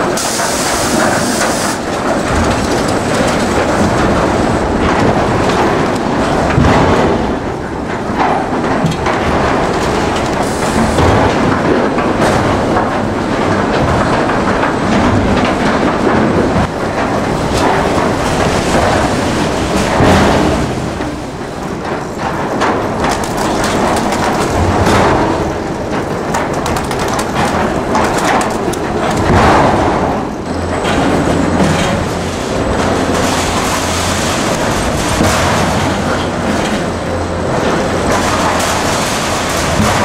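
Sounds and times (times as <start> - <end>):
conveyor machinery clattering: 0.0 - 40.0
logs knocking against steel: 1.0 - 32.1.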